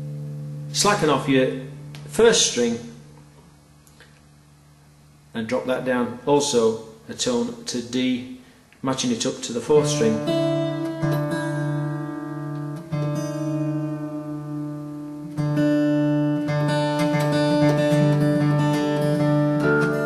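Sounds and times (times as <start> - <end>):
acoustic guitar strings plucked: 9.8 - 20.0.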